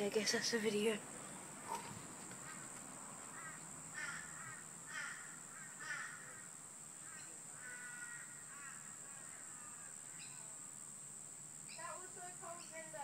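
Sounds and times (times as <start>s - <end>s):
bird calling: 0.2s - 10.5s.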